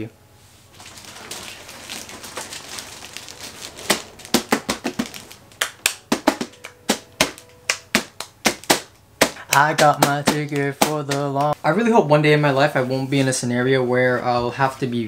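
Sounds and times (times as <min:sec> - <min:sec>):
plastic wrapping rustling: 0:00.6 - 0:08.7.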